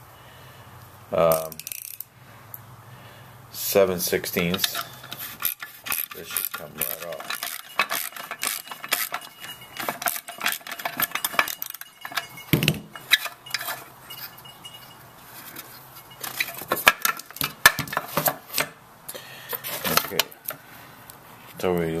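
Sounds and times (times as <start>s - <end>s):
socket wrench clicking: 1.4s - 2.1s, 4.5s - 12.3s.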